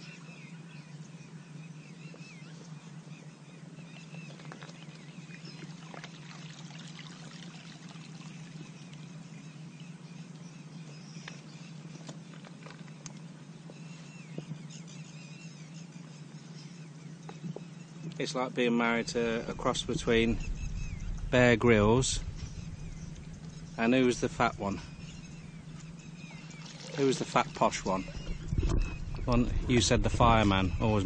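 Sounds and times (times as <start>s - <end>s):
steady low hum: 0.0s - 31.0s
water sloshing and trickling: 4.1s - 9.2s, 22.2s - 31.0s
short wavering chirps: 18.9s - 31.0s.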